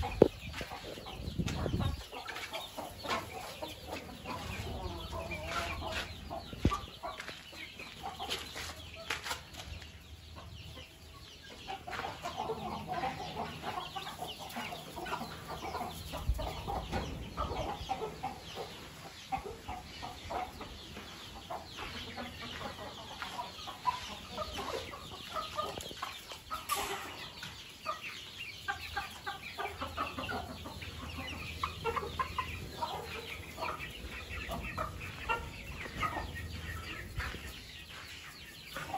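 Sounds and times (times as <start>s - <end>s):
chickens clucking: 0.0s - 38.9s.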